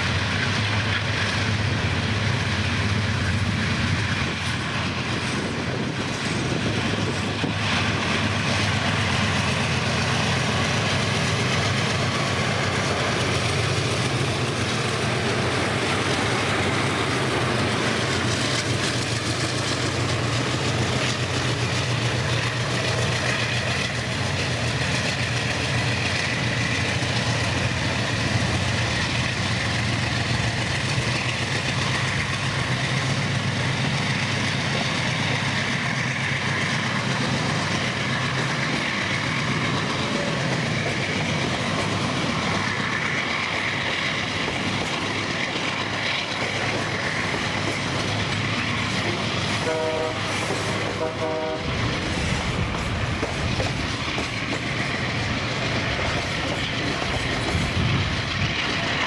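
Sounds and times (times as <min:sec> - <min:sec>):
train wagons rolling on rails: 0:00.0 - 0:59.0
train horn toots: 0:49.6 - 0:51.8.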